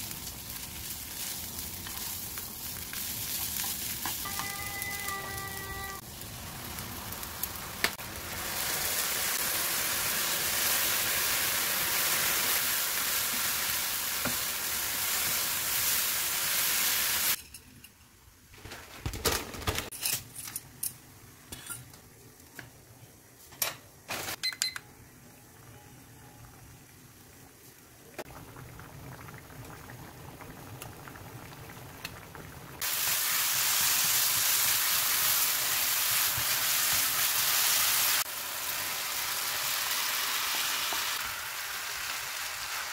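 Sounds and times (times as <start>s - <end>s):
food sizzling in frying pan: 0.0s - 17.4s, 32.6s - 42.9s
water boiling in pan: 0.0s - 17.4s, 26.4s - 42.9s.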